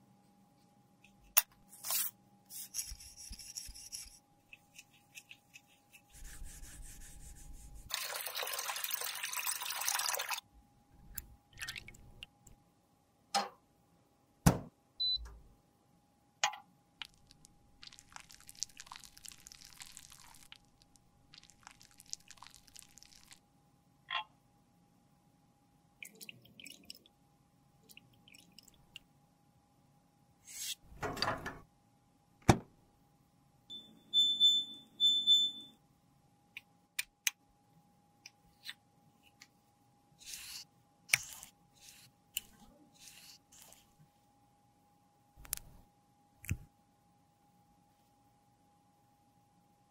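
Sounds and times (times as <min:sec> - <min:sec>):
cotton swab scrubbing plastic tube: 0:02.6 - 0:07.9, 0:17.0 - 0:23.4, 0:40.2 - 0:43.9
soft liquid sounds: 0:07.4 - 0:12.5, 0:17.0 - 0:23.4, 0:26.0 - 0:27.2, 0:27.8 - 0:29.1
faint steady hum: 0:10.3 - 0:49.9.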